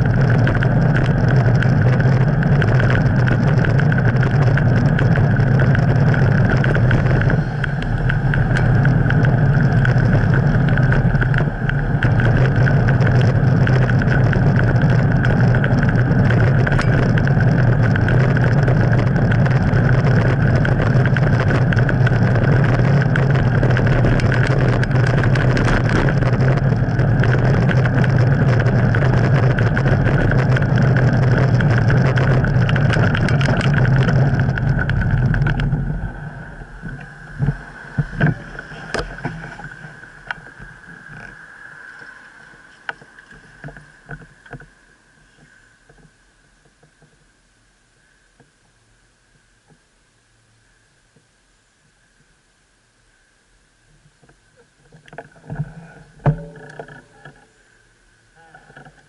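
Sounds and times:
wind buffeting: 0.0 - 44.9
bicycle road rumble: 0.0 - 59.0
steady high whine: 0.0 - 59.0.

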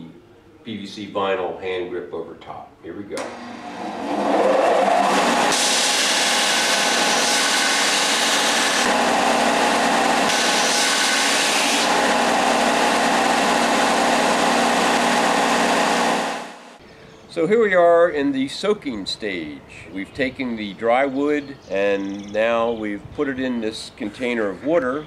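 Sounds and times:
belt sander sanding wood: 3.6 - 16.8.

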